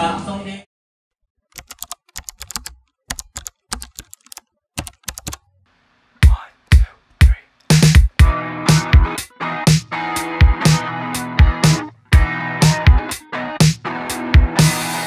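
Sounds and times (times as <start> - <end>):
keyboard typing clicks: 1.5 - 5.4.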